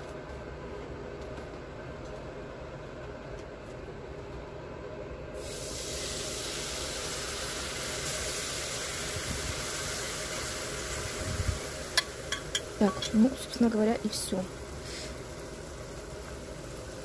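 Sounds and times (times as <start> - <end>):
juices sizzling in frying pan: 5.4 - 17.0.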